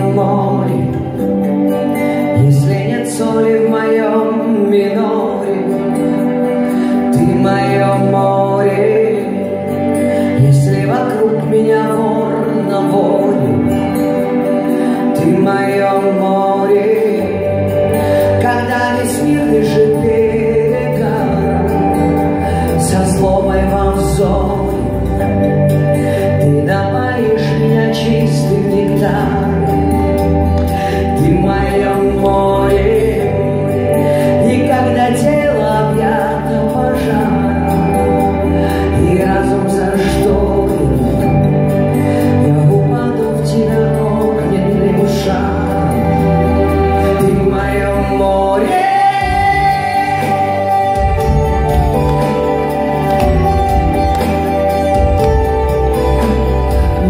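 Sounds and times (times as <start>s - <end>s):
live pop band playing: 0.0s - 57.0s
woman singing: 47.2s - 52.4s.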